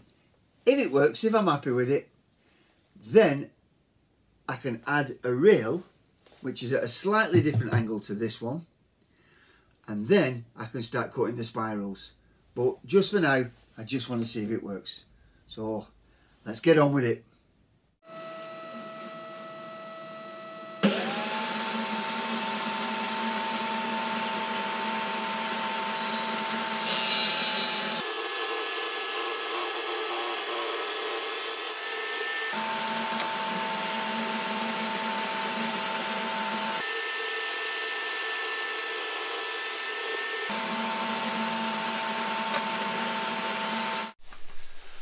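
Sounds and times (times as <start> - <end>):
table saw motor whine: 18.0 - 44.2
saw blade cutting wood: 20.8 - 44.2.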